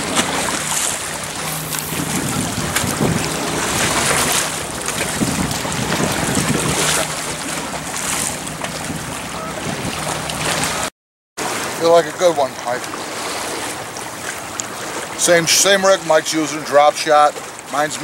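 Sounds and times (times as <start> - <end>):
wind blowing on microphone: 0.0 - 10.9
water washing against pier: 0.0 - 18.0.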